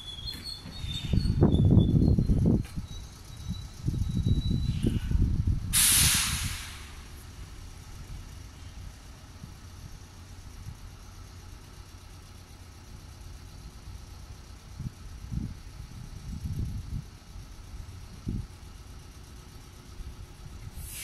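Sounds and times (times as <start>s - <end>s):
train rumbling: 0.0s - 21.0s
train brakes air hiss: 4.7s - 7.4s, 20.6s - 21.0s.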